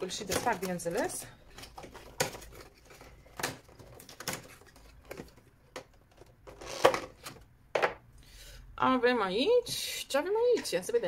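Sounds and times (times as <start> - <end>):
packaging rustling: 0.2 - 7.5.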